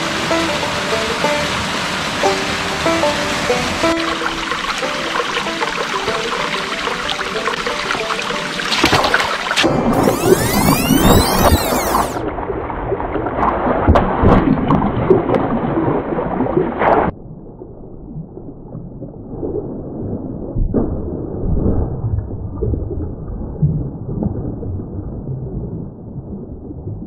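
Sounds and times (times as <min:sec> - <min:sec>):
stream running over rocks: 0:00.0 - 0:12.2
footsteps on wet stones: 0:08.7 - 0:09.7.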